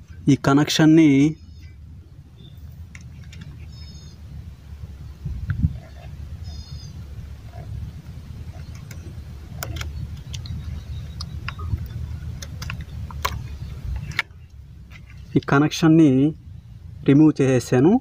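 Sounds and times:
low rumble: 1.3 - 17.6.

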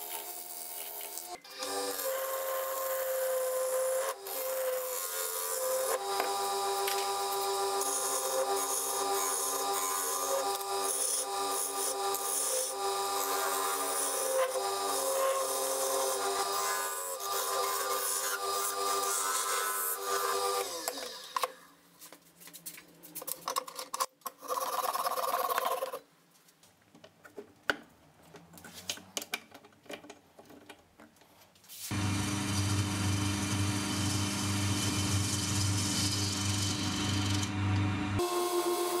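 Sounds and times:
tool cutting spinning wood: 1.2 - 21.6, 31.9 - 39.0
wood lathe running: 1.5 - 21.0, 31.9 - 39.0
handling knocks and clicks: 26.6 - 31.6
motor winding down whine: 31.9 - 39.0.

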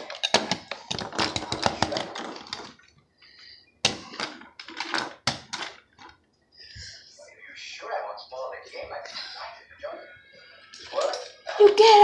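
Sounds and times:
plastic toys clattering: 0.0 - 2.9, 3.9 - 6.2.

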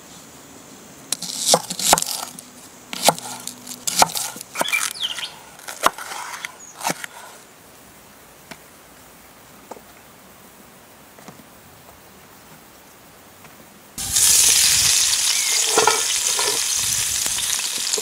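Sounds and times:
cleaver chopping on wooden board: 1.2 - 2.4, 3.0 - 4.9.

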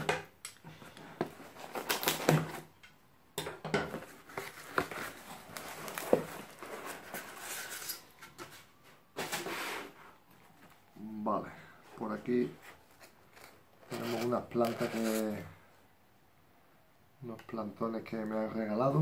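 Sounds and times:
cardboard rustling: 0.8 - 2.7, 3.9 - 10.9, 11.8 - 15.6
cardboard flaps scraping: 4.0 - 10.2.

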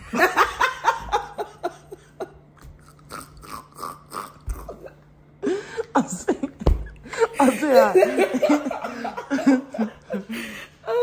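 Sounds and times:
woman laughing hard: 0.0 - 2.5, 5.4 - 11.0.

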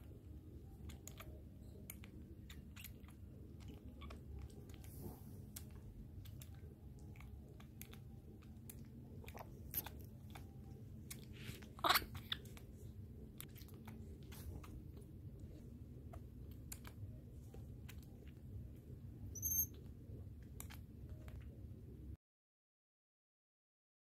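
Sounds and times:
baby monkey suckling: 0.6 - 18.4.

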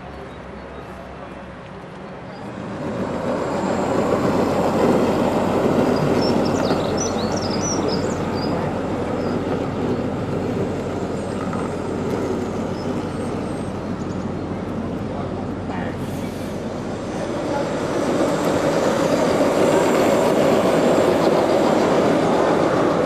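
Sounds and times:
model train rumbling on track: 0.8 - 23.0.

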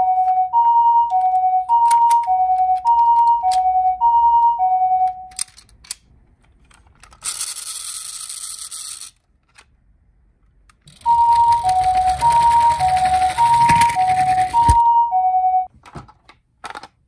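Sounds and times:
toy two-tone siren: 0.0 - 5.4, 10.9 - 15.7
toy rolling on wooden table: 7.1 - 9.2, 10.9 - 14.8
rasping whir of toy wheel: 10.9 - 14.8.

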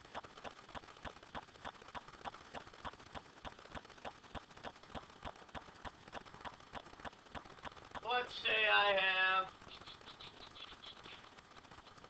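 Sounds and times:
rapid faint clicking: 0.0 - 12.0.

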